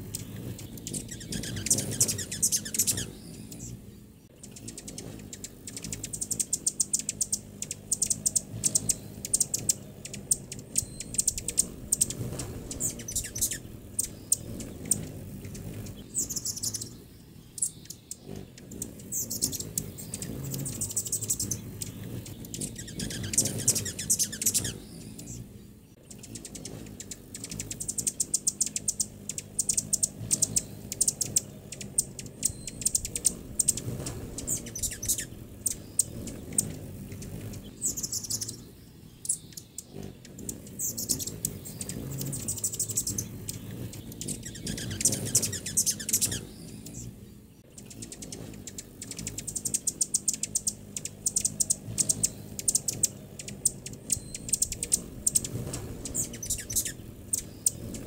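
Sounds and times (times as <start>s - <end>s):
hummingbirds chattering: 0.0s - 58.0s.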